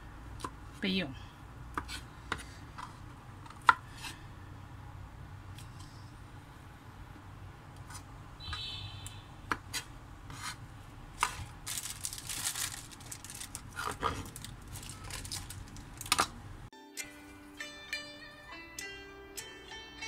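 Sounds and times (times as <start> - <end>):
rustling scrape: 9.7 - 10.6.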